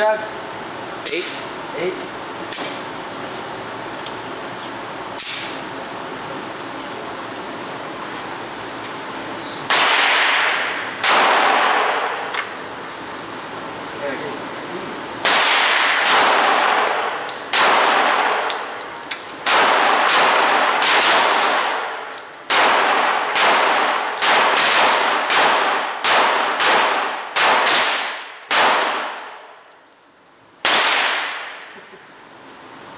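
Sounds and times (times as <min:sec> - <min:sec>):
pistol shots echoing indoors: 0:09.7 - 0:12.3, 0:15.2 - 0:18.8, 0:19.4 - 0:29.6, 0:30.6 - 0:31.6.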